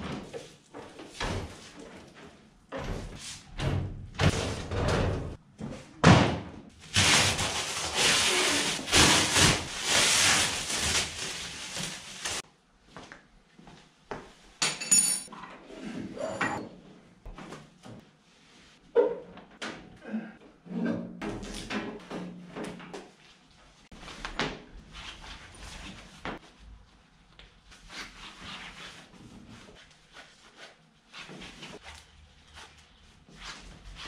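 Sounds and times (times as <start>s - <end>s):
plastic wrapping crackling: 6.8s - 12.4s
metallic clink: 14.6s - 15.3s.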